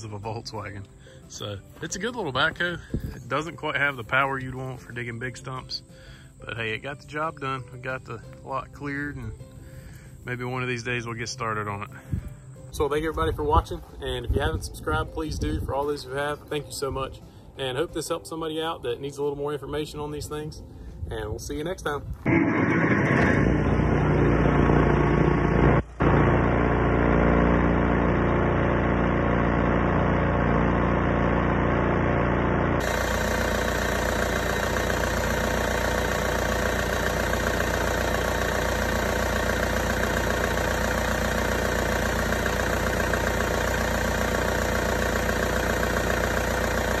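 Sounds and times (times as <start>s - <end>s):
diesel engine idling: 22.3s - 47.0s
hissy engine bay sound: 32.8s - 47.0s.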